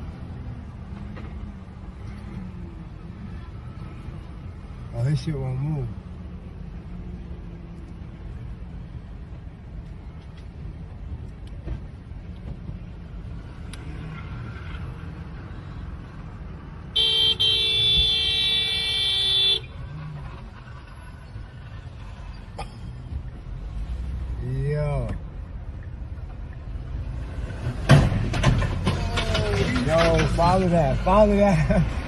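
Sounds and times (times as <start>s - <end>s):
car engine rumble: 0.0s - 32.0s
road noise: 0.0s - 32.0s
car horn honk: 16.9s - 19.8s.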